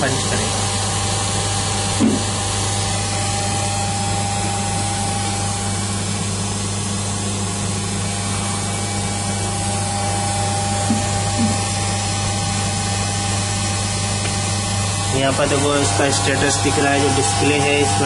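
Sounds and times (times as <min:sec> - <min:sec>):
laminating machine humming: 0:00.0 - 0:18.0.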